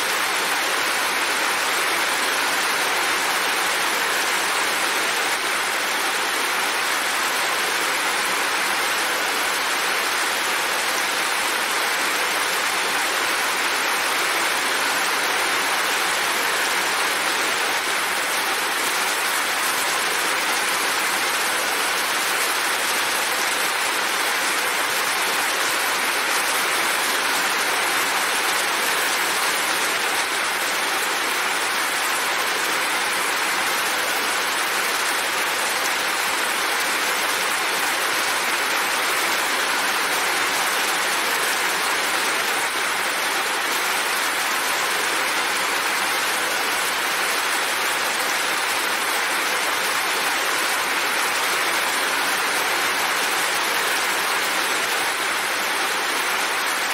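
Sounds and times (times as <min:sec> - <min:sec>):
heavy rain falling: 0:00.0 - 0:56.9.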